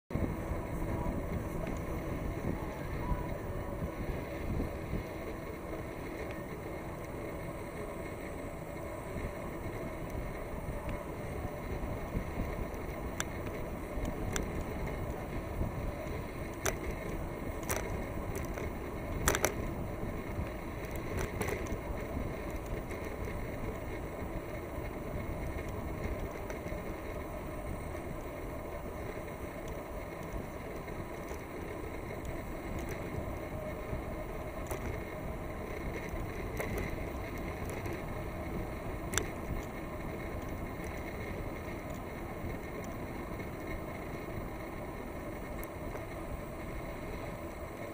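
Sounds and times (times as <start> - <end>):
wind: 0.0 - 47.9
bicycle rolling on pavement: 0.1 - 47.9
bike clicks and knocks: 9.8 - 24.0, 24.8 - 47.9.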